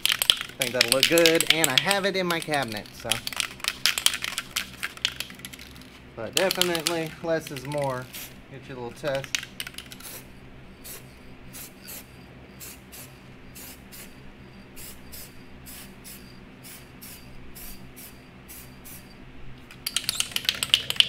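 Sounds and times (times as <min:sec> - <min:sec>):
spray can ball rattling: 0:00.0 - 0:08.4, 0:09.0 - 0:14.2, 0:19.7 - 0:21.0
aerosol spray paint bursts: 0:09.9 - 0:14.2, 0:14.8 - 0:19.1.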